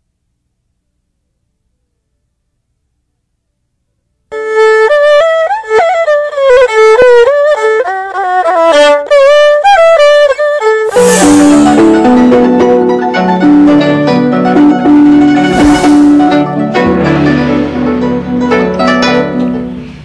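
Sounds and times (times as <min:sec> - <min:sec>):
solo fiddle melody: 0:04.3 - 0:20.0
cymbal crash: 0:10.8 - 0:20.0
low sustained chords: 0:10.9 - 0:20.0.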